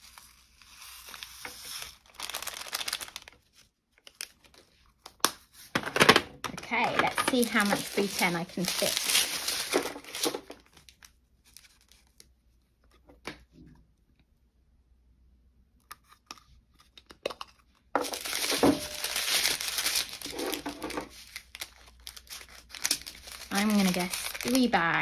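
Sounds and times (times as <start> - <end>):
plastic bags crinkling: 1.0 - 4.6, 5.8 - 12.2, 18.0 - 25.0.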